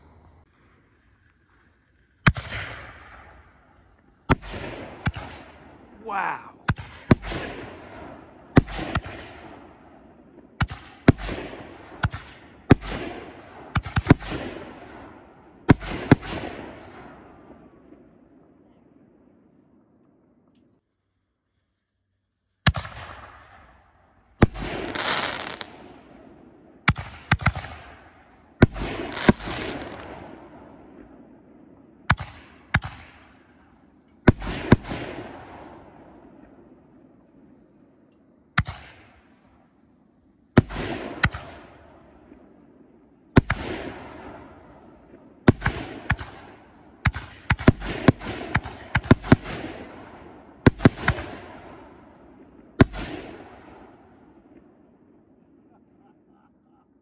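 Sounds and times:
firework shells bursting: 22.7 - 26.0, 26.7 - 30.4.

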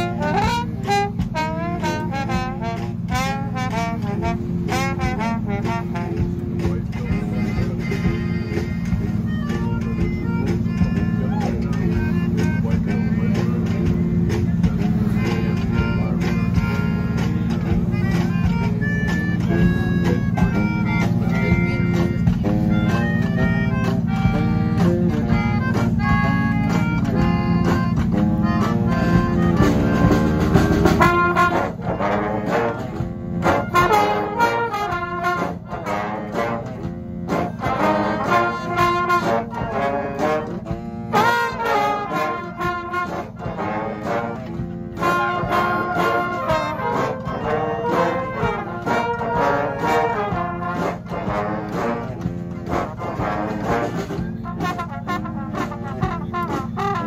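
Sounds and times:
brass band playing: 0.0 - 57.0.

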